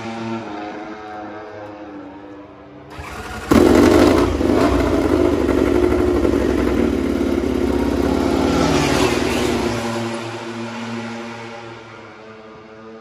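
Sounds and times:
external starter spinning: 0:02.9 - 0:05.8
motorcycle engine revving and idling: 0:02.9 - 0:10.8.

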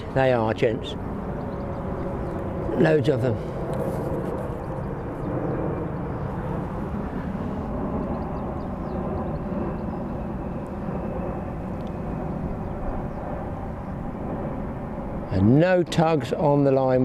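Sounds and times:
wind blowing across microphone: 0:00.0 - 0:17.0.

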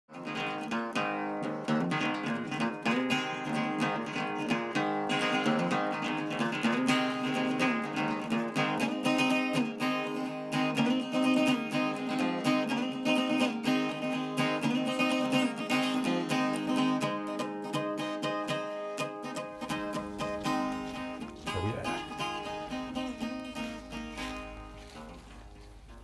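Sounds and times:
acoustic guitar plucked and strummed: 0:00.1 - 0:26.0.

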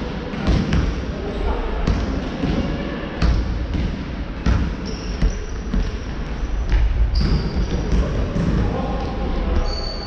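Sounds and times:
sneakers squeaking on court: 0:04.4 - 0:08.5.

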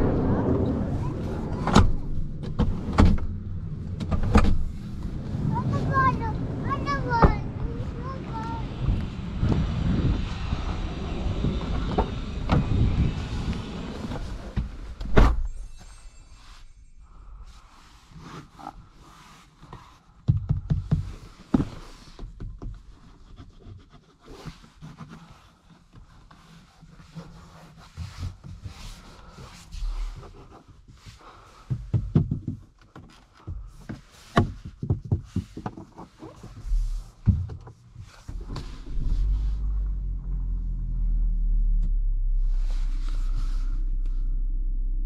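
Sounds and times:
car engine humming: 0:00.0 - 0:15.3, 0:38.2 - 0:45.0
clicks and knocks in car cabin: 0:20.2 - 0:23.2, 0:31.6 - 0:38.6.

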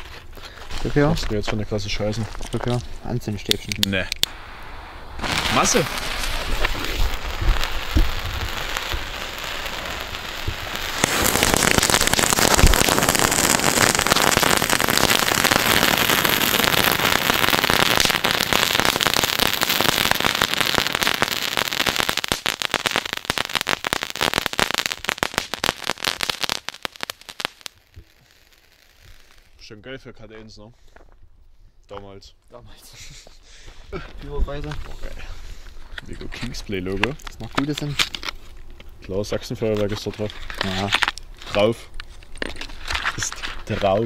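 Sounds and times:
firework fountains hissing and crackling: 0:03.0 - 0:29.6
thin sparking sizzle: 0:03.4 - 0:29.6.

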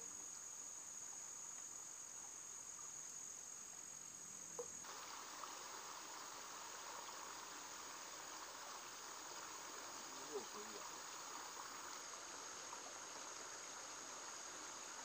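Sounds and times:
insects chorus: 0:00.0 - 0:15.0
water spilling over weir: 0:04.8 - 0:15.0.

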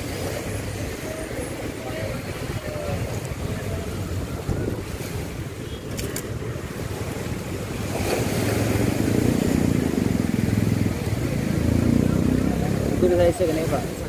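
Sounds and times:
surf rumbling: 0:00.0 - 0:14.0
wind buffeting microphone: 0:02.1 - 0:11.5.

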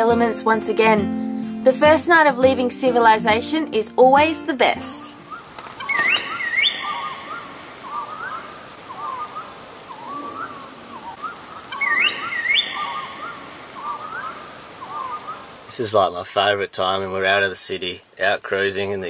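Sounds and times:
wild birds calling: 0:04.6 - 0:15.8
quick rising whistles: 0:05.2 - 0:15.5.

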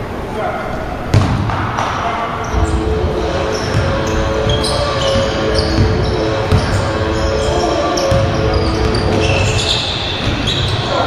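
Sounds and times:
sneaker squeaks: 0:03.4 - 0:11.0.

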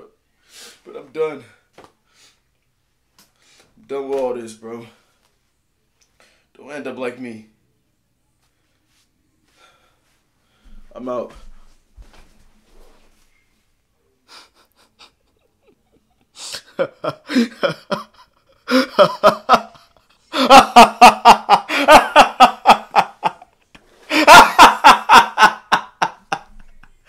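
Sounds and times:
man laughing: 0:14.3 - 0:27.0.

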